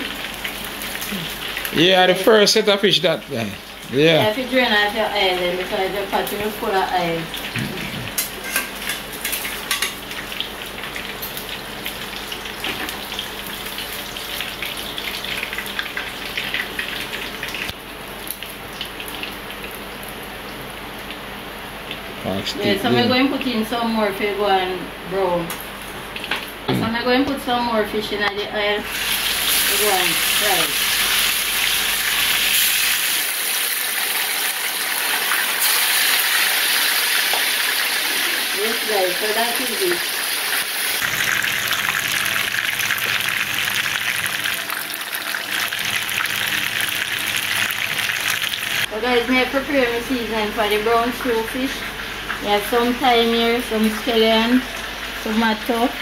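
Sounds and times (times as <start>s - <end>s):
fish frying in hot oil: 0.0s - 2.6s, 3.6s - 22.2s, 28.8s - 56.0s.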